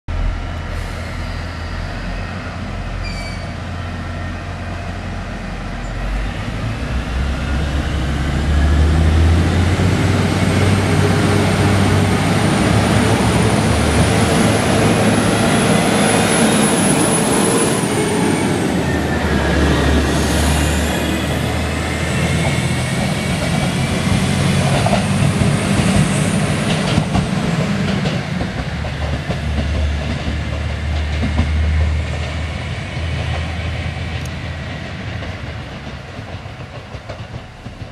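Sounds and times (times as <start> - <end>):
high-pitched wheel squeal: 0.9 - 3.7
train wheels clattering on rails: 10.1 - 37.9.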